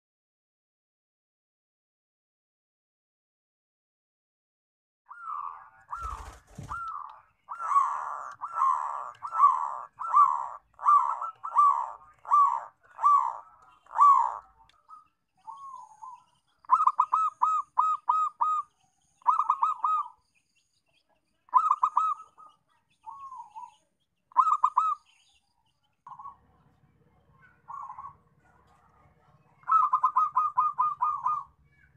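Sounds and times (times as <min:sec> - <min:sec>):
dove cooing: 0:05.1 - 0:20.2, 0:21.5 - 0:25.0, 0:26.1 - 0:31.8.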